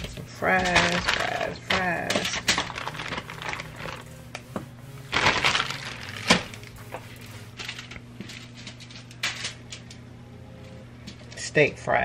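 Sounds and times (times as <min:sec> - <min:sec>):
aluminium foil crinkling: 0:00.0 - 0:04.4, 0:05.1 - 0:09.8.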